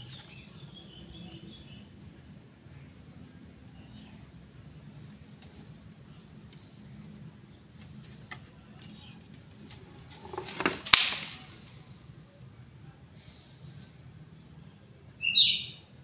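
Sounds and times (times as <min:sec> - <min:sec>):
bird chirping: 0:00.0 - 0:01.9, 0:15.2 - 0:15.9
pole clattering onto bamboo slats: 0:09.6 - 0:11.6.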